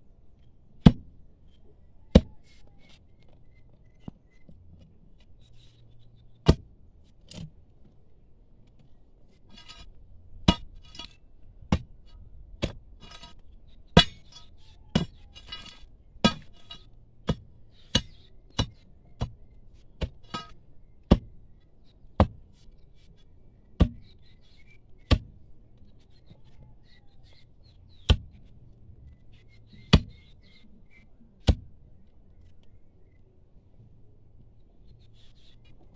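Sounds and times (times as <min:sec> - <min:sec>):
metal tool striking stone: 0:10.5 - 0:11.9, 0:12.6 - 0:19.3, 0:20.0 - 0:21.3
loosened stones rattling: 0:12.6 - 0:21.2.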